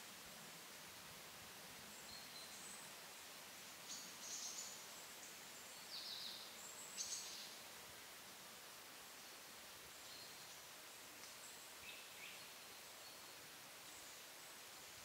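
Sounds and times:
background hiss: 0.0s - 15.0s
small birds chirping: 3.6s - 7.7s.

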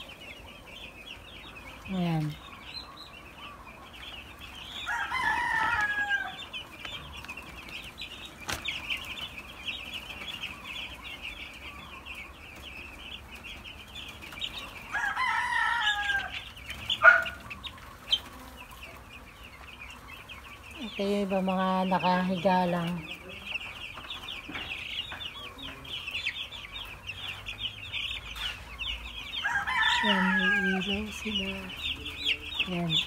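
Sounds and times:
chicks peeping: 0.0s - 33.0s
rooster crowing: 4.8s - 6.6s, 14.8s - 18.1s, 29.2s - 31.1s.

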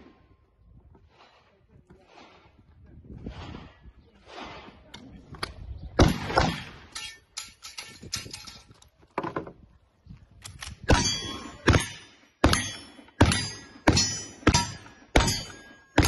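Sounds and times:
gunshots: 6.0s - 6.9s, 10.9s - 16.0s
steel target clanging: 6.9s - 8.7s, 10.9s - 16.0s.

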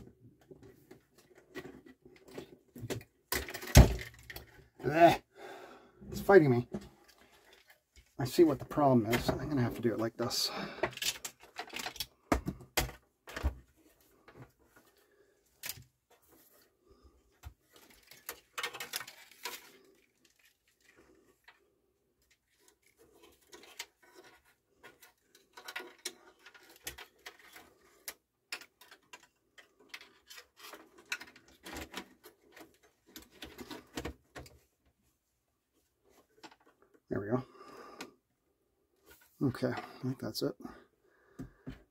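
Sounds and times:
plastic faceplate clicking and rattling: 10.8s - 13.6s, 17.6s - 20.3s, 22.3s - 34.7s.

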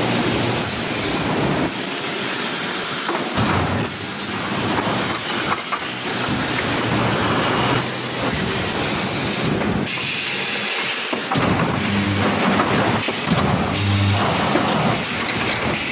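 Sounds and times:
hiss: 0.6s - 6.7s, 7.7s - 11.4s
welding machine mechanical din: 11.2s - 15.9s.

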